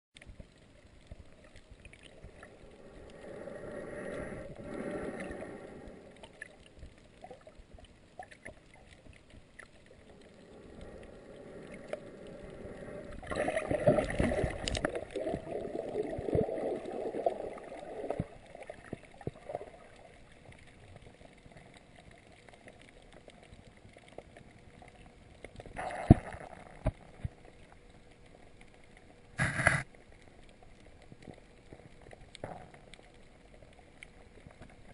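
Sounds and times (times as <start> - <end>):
muffled underwater water noise: 0.2 - 34.9
gurgling swells: 1.9 - 7.6, 9.8 - 20.1.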